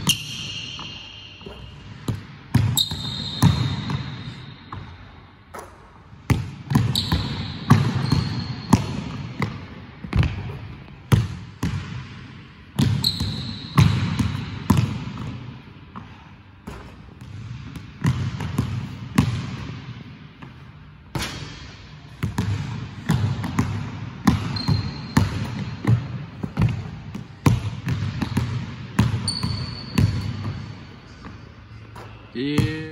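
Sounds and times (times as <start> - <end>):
sneaker squeaks: 0.0 - 5.0, 6.7 - 9.5, 12.8 - 14.8, 24.3 - 26.8, 29.0 - 32.8.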